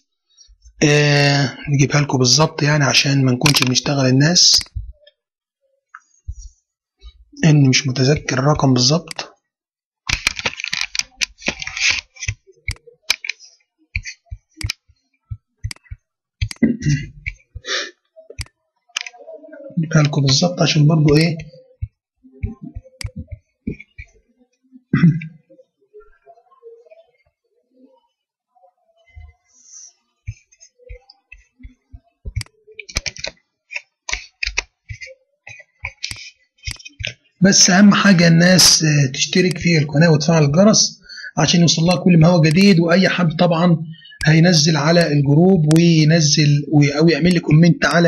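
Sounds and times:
rustling and scraping: 10.1s - 12.4s
computer mouse clicks: 10.1s - 14.8s, 15.6s - 16.6s, 21.1s - 24.2s, 30.3s - 37.2s.

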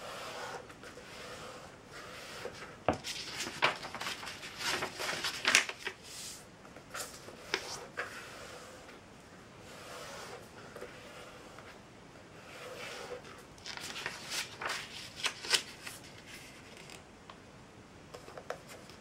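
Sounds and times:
faint steady hiss: 0.0s - 19.0s
paper rustling and crackling: 2.4s - 6.0s, 13.2s - 17.0s.

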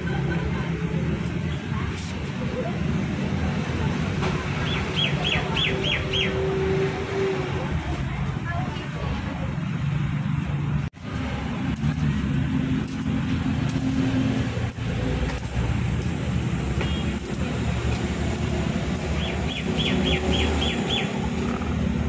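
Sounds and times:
traffic passing: 0.0s - 22.0s
high chirps: 19.0s - 21.6s.

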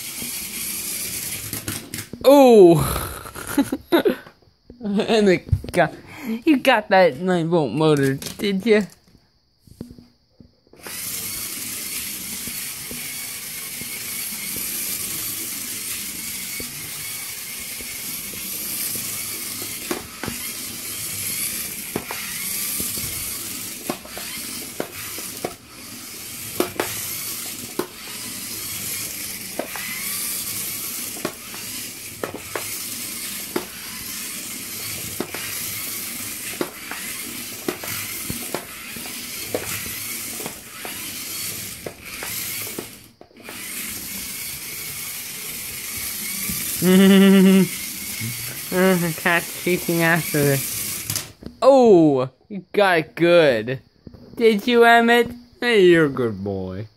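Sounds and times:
toy train motor whirring: 0.0s - 3.6s, 10.7s - 51.5s.

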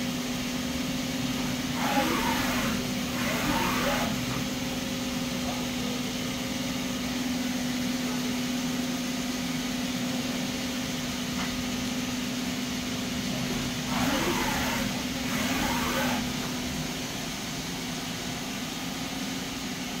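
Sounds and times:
lathe mechanical hum: 0.0s - 20.0s
wavering machine whine: 1.6s - 4.5s, 13.8s - 16.7s.

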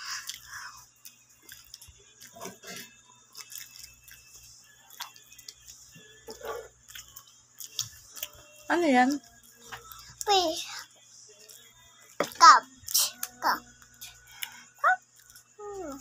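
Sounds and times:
child chewing and lip smacking: 0.0s - 6.2s, 6.9s - 8.5s.

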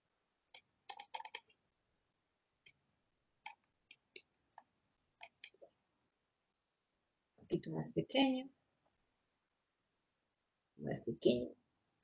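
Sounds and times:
computer mouse clicking: 0.5s - 1.6s, 3.4s - 5.7s.

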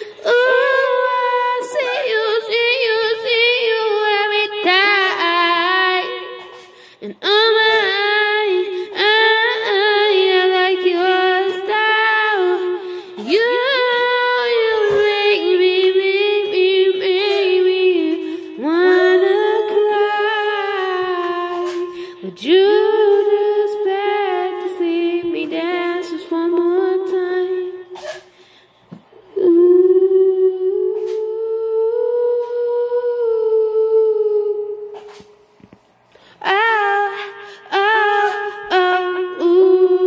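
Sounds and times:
girl singing into karaoke microphone: 0.0s - 40.0s.

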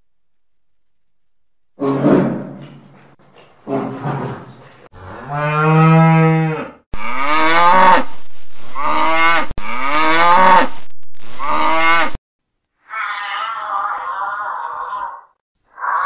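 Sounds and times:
cattle mooing: 5.0s - 8.1s.

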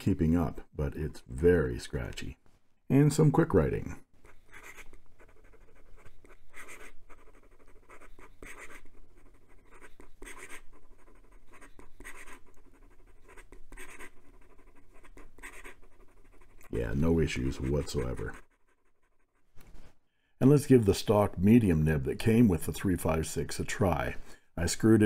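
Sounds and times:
pen nib scratching paper: 4.2s - 19.7s.

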